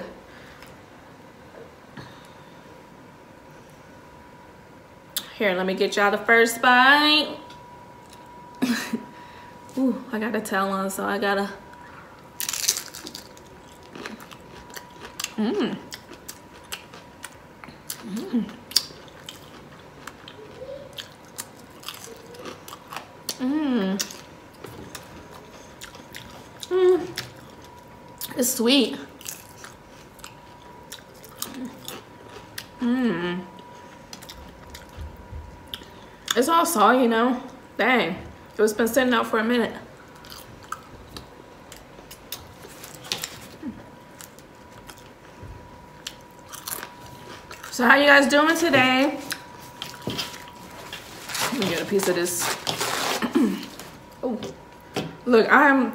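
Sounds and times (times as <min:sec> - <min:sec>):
faint steady tone: 0:06.1 - 0:12.4
chewing and mouth clicks: 0:12.4 - 0:23.4, 0:24.0 - 0:28.4, 0:34.1 - 0:36.4
crunchy chewing: 0:12.4 - 0:23.4, 0:24.0 - 0:28.4, 0:29.1 - 0:32.8, 0:40.1 - 0:45.3, 0:45.9 - 0:47.8, 0:49.2 - 0:54.2.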